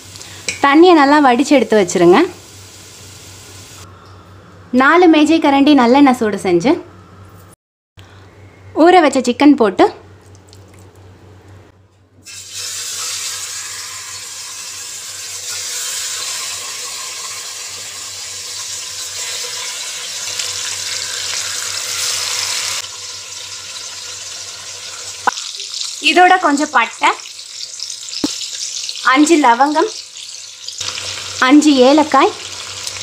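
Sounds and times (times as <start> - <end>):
chicken sizzling in hot oil: 1.3 - 3.8, 12.2 - 33.0.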